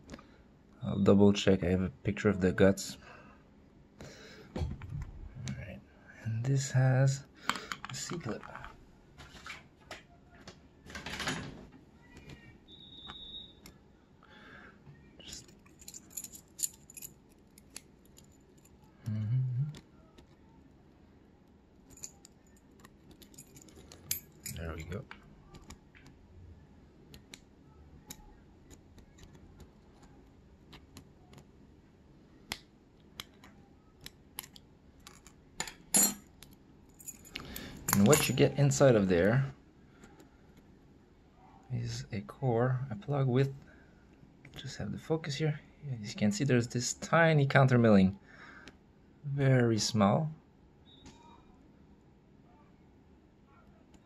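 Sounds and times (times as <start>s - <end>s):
keys jingling on a ring: 15.3s - 18.8s, 21.9s - 25.0s, 37.0s - 38.4s.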